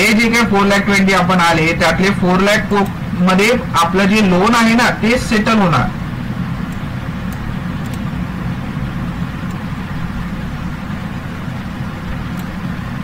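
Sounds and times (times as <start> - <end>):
faint sharp clicks: 6.7 - 8.1, 12.3 - 12.6.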